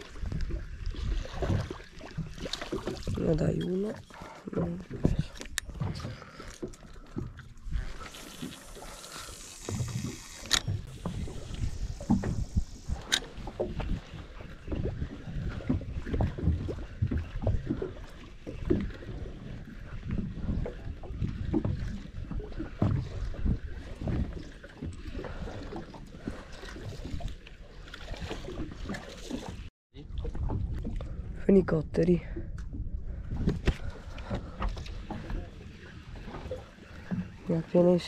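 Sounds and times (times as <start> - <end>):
waves lapping against boat hull: 0.0 - 38.0
wind on microphone: 9.6 - 18.1.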